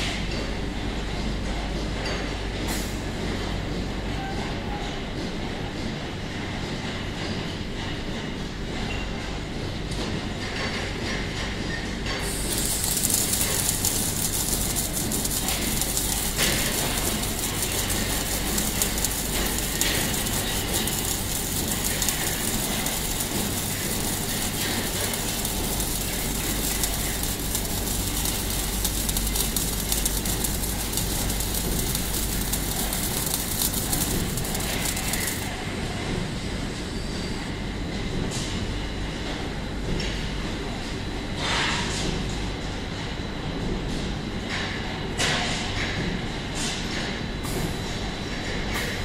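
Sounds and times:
welding arc crackling hiss: 12.2s - 35.7s, 48.8s - 49.0s
machine low hum: 12.2s - 37.5s.

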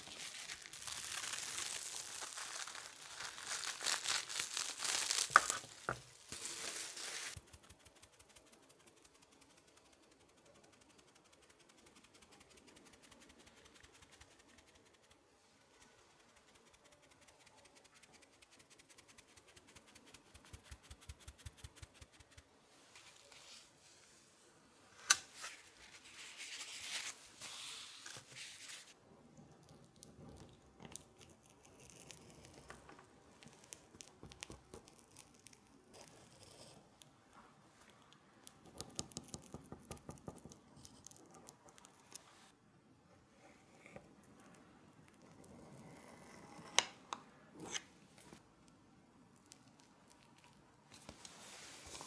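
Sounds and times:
cocoa powder pattering through sieve: 0.0s - 22.5s.

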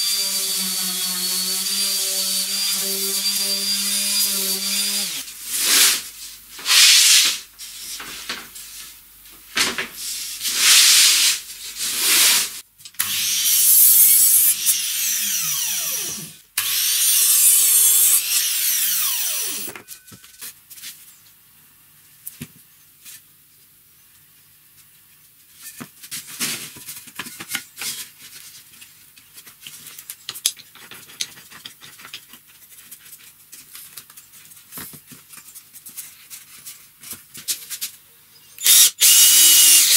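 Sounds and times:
miter saw cutting wood: 0.0s - 5.2s, 13.0s - 19.8s, 38.6s - 39.9s.

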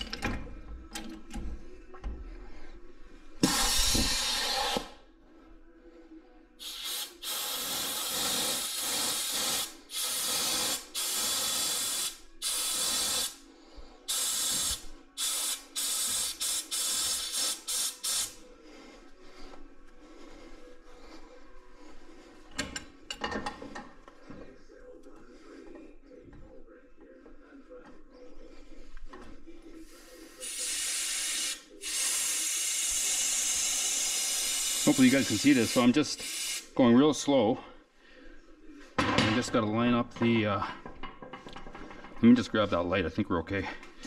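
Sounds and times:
pneumatic air tool hissing: 3.4s - 5.0s, 6.6s - 13.4s, 14.1s - 18.4s, 30.0s - 36.7s.

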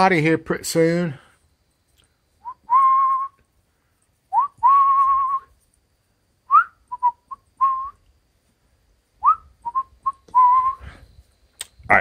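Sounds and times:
person whistling a call: 2.4s - 3.4s, 4.3s - 5.5s, 6.5s - 8.0s, 9.2s - 11.0s.

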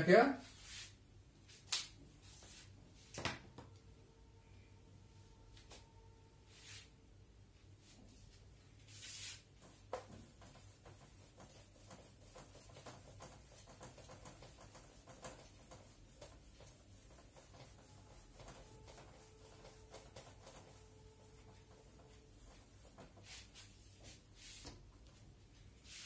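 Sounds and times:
duster wiping a whiteboard: 0.4s - 1.0s, 2.2s - 2.8s, 6.5s - 7.0s, 7.8s - 26.0s.

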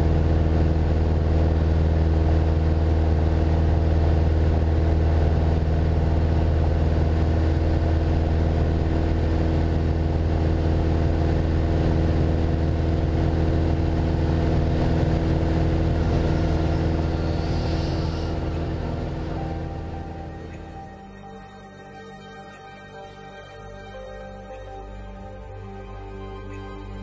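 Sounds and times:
aircraft engine and propeller droning: 0.0s - 27.0s.

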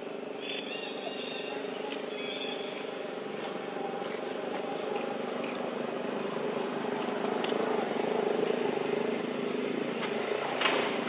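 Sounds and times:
motor running steadily: 0.0s - 11.0s.

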